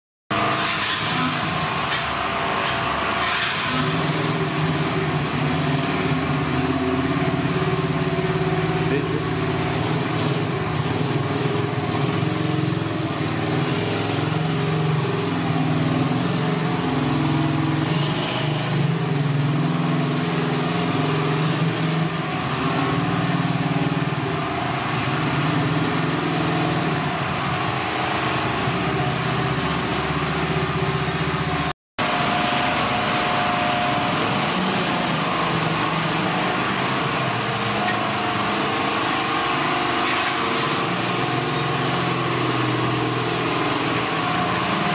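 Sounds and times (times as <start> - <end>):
quad bike engine running: 0.4 - 44.9.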